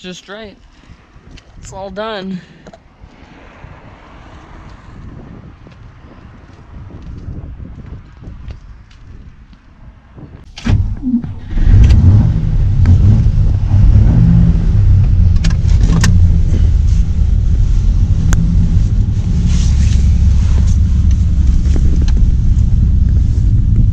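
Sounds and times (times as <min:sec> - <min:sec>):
road noise: 0:00.0 - 0:23.9
car engine running: 0:10.7 - 0:23.9.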